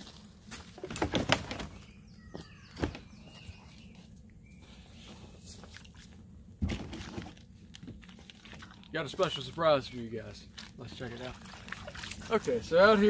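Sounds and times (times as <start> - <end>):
gliding bird chirps: 1.7 - 5.0.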